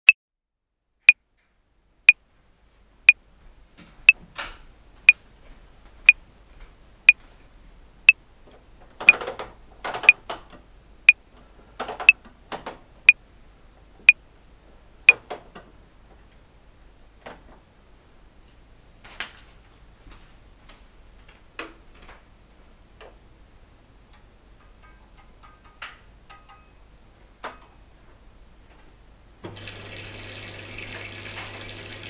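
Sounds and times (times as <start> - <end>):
washing machine hum: 29.4 - 32.0.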